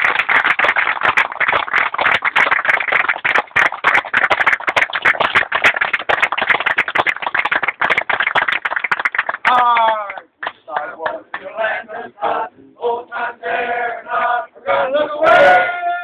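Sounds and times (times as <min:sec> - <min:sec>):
audience applauding: 0:00.0 - 0:10.2.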